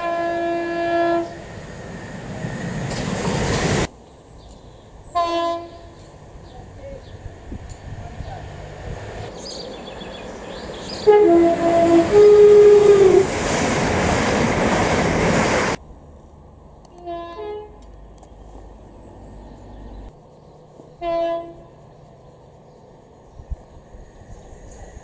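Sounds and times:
two-note train horn: 0:00.0 - 0:01.4, 0:05.1 - 0:06.1, 0:11.0 - 0:13.2, 0:16.9 - 0:17.8, 0:21.0 - 0:21.8
rush of passing train: 0:00.0 - 0:25.0.

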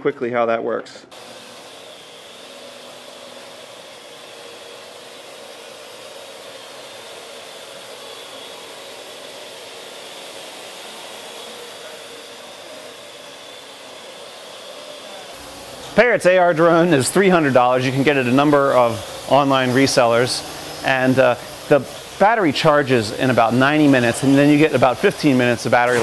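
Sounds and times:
quadcopter propellers whirring: 0:01.1 - 0:26.0.

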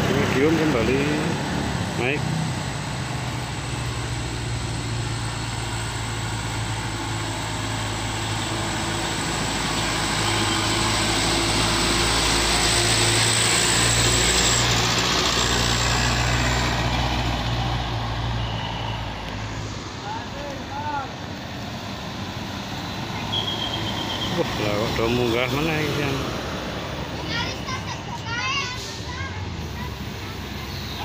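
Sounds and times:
bus diesel engine under load: 0:00.0 - 0:31.0.

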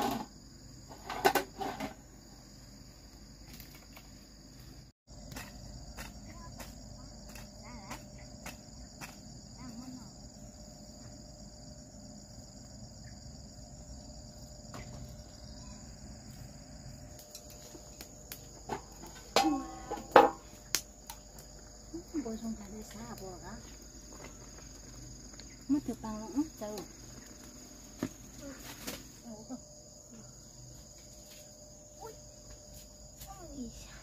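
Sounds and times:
high-pitched insect chorus: 0:00.0 - 0:34.0.

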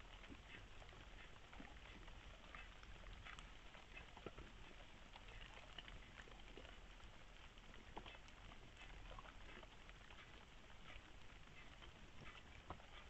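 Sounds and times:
steady low hiss: 0:00.0 - 0:02.9.

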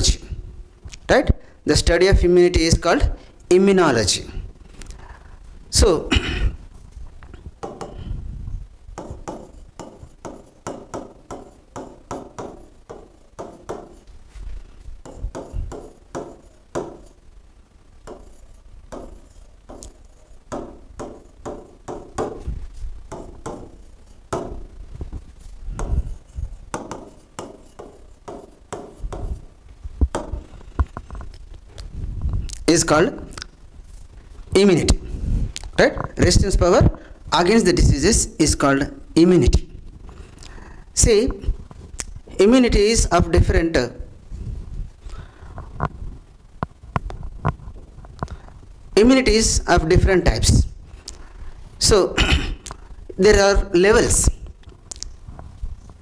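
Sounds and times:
stylus tapping on glass board: 0:07.6 - 0:08.0, 0:09.0 - 0:14.0, 0:15.0 - 0:17.2, 0:18.1 - 0:18.3, 0:18.9 - 0:22.5, 0:23.1 - 0:24.7, 0:26.7 - 0:29.4.

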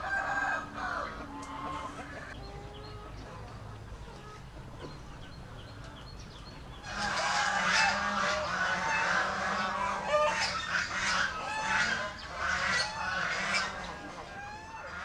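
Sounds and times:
domestic fowl calling: 0:00.0 - 0:03.5, 0:06.8 - 0:15.0.

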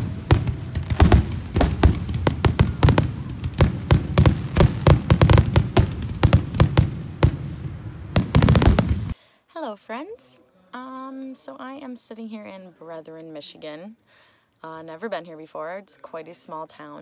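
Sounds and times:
fireworks bangs and pops: 0:00.0 - 0:09.2.

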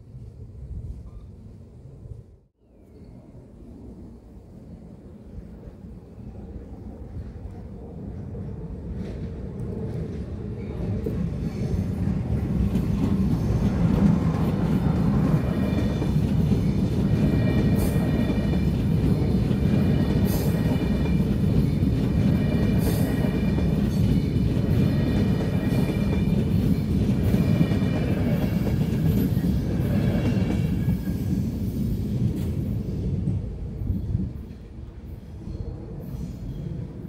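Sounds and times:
train passing at speed: 0:00.0 - 0:37.0
wheels clacking on rails: 0:08.8 - 0:34.8.

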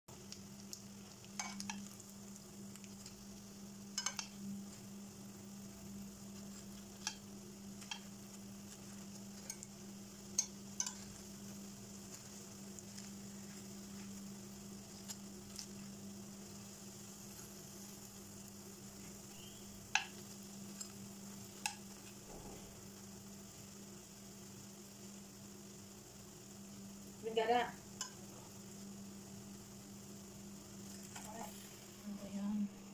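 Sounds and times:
rolls sizzling in oil: 0:00.1 - 0:32.9
tongs clicking against pan: 0:00.2 - 0:03.2, 0:03.8 - 0:04.8, 0:06.4 - 0:11.4, 0:19.3 - 0:22.2, 0:27.9 - 0:28.3.

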